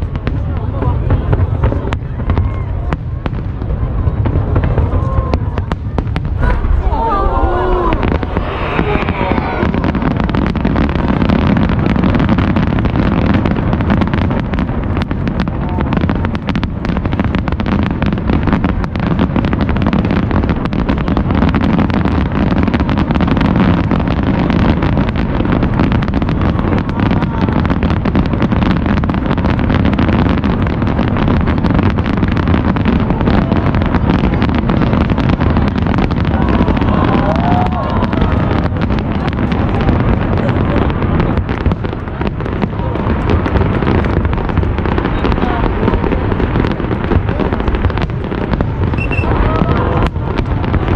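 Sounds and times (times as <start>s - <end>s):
fireworks bursting: 0.0s - 50.9s
low rumble: 1.5s - 10.5s.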